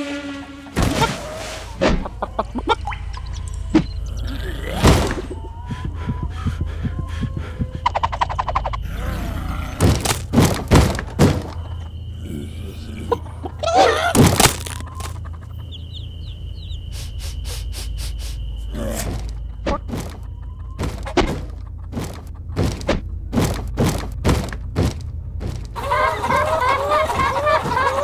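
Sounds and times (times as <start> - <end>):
steady low hum: 0.0 - 28.0
hens clucking: 0.8 - 9.2, 11.0 - 24.2, 25.4 - 28.0
sharp knocks: 9.8 - 11.6, 20.8 - 25.8.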